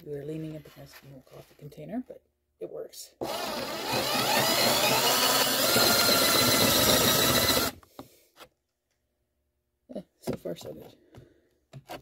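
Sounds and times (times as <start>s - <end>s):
cordless drill boring through wood: 3.2s - 7.8s.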